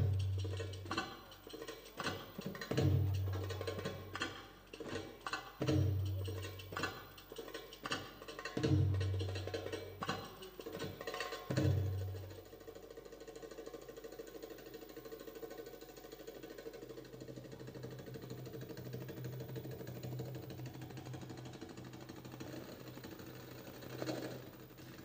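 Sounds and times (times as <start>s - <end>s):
steady low hum: 0.0s - 1.4s
hand drum roll: 0.0s - 25.0s.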